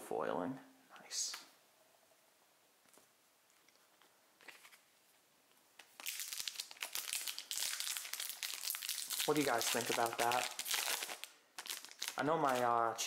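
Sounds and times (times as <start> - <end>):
foil wrapper crinkling and tearing: 5.8 - 12.8.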